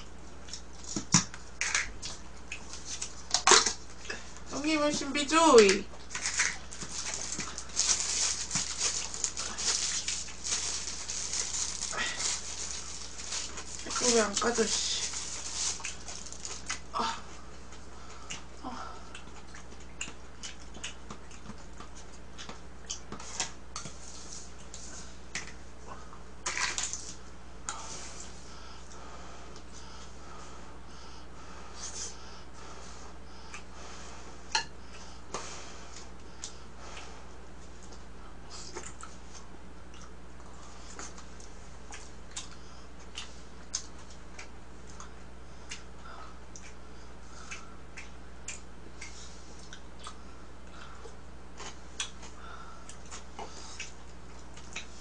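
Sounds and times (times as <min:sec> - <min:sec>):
steady low hum: 0:00.0 - 0:55.0
plastic wrapper crinkling: 0:06.1 - 0:16.7
soft breathing and mouth sounds: 0:27.0 - 0:55.0.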